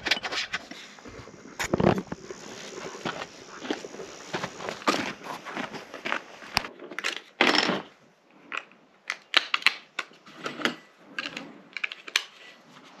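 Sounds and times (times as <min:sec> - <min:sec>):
plastic parts clicking together: 0:08.4 - 0:12.6.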